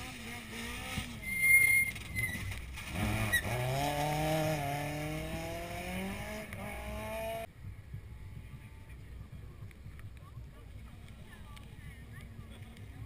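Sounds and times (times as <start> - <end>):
rally car engine revving: 0.0 - 7.5.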